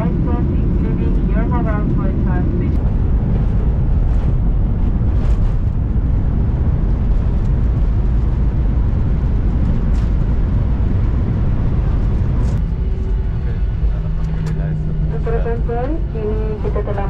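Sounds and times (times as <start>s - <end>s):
jet engine noise in cabin: 0.0s - 17.0s
wheels running on runway: 2.5s - 14.9s.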